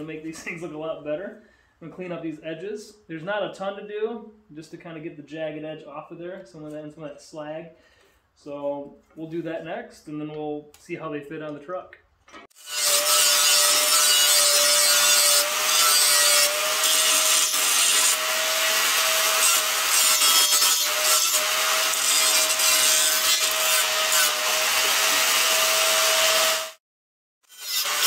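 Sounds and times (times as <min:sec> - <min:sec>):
angle grinder rasping on steel: 0:12.5 - 0:26.8, 0:27.4 - 0:28.0.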